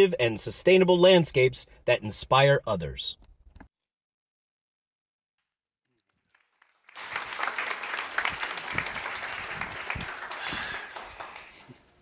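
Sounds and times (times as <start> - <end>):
audience applauding: 6.1 - 11.8.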